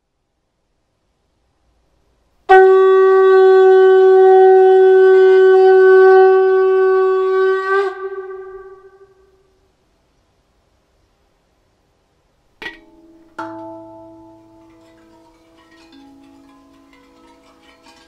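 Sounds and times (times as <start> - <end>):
animal horn long note: 2.5 - 9.4.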